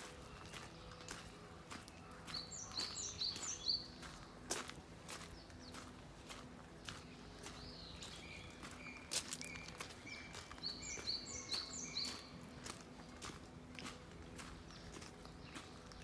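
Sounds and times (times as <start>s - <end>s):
bird singing: 0.0s - 16.0s
footsteps crunching on gravel: 0.0s - 16.0s.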